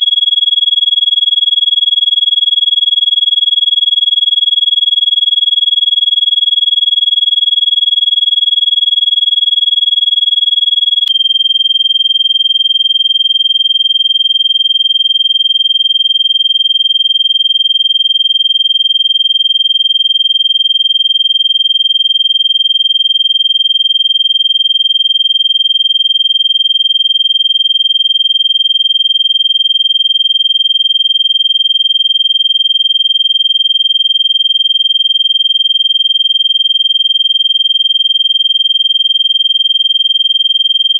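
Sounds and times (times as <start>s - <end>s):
high-pitched sine tone: 0.0s - 0.6s, 10.8s - 13.6s.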